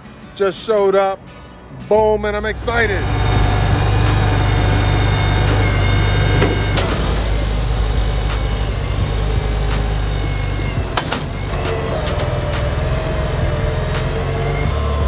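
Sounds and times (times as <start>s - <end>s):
forklift engine running: 2.2s - 15.0s.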